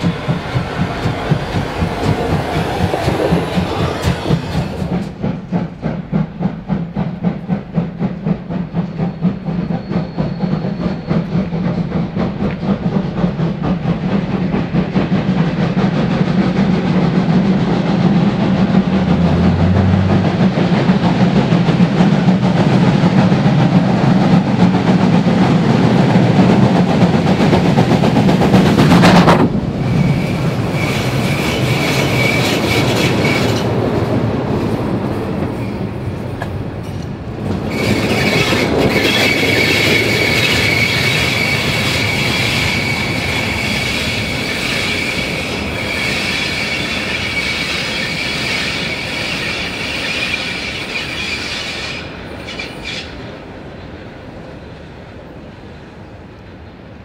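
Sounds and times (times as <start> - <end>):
train wheels clattering on rails: 0.0 - 54.6
steam locomotives rumbling: 0.0 - 57.0
high-pitched wheel squeal: 37.7 - 53.2.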